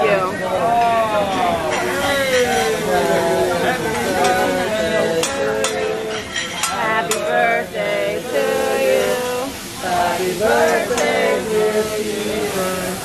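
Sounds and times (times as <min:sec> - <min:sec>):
background voices: 0:00.0 - 0:13.0
food sizzling on griddle: 0:00.0 - 0:13.0
people singing: 0:00.0 - 0:13.0
metal spatulas clanking: 0:04.0 - 0:07.4.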